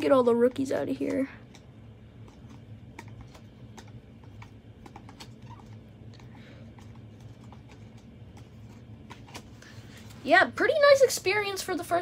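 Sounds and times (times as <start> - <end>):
faint low hum: 0.0 - 12.0
cards flipping and shuffling: 1.0 - 10.2.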